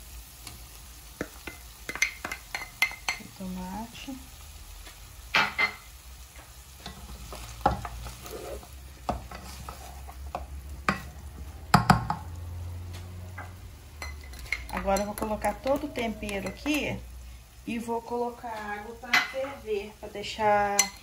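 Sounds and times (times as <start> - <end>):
meat sizzling faintly: 0.0 - 21.0
spoon stirring food in a pot: 0.4 - 3.3, 6.8 - 12.3, 13.4 - 16.9, 20.4 - 21.0
spoon knocking against pot: 11.7 - 12.3.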